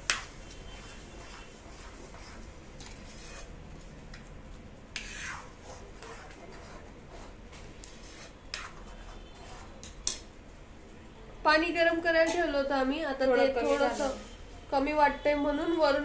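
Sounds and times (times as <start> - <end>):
spoon stirring thick pudding: 0.0 - 10.2.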